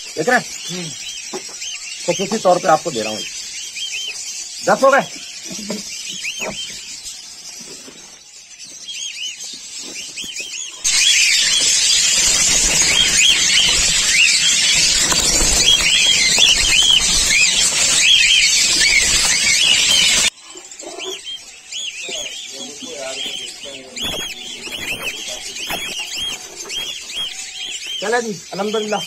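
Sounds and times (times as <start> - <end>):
cockatiels chirping and screeching: 0.0 - 29.0.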